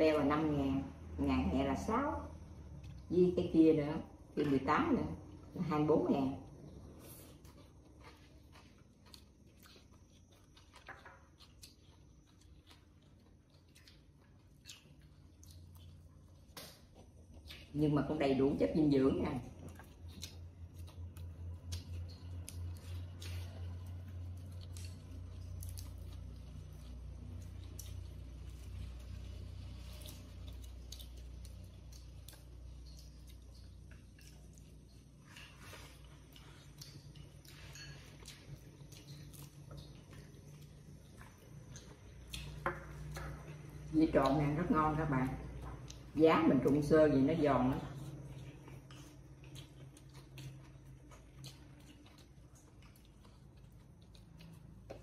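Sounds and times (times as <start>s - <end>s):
low steady hum: 0.0s - 55.0s
soft chewing: 1.9s - 3.4s, 4.1s - 55.0s.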